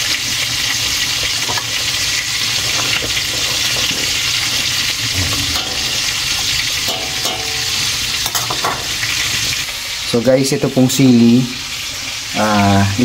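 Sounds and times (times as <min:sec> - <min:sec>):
liquid boiling and bubbling: 0:00.0 - 0:10.2.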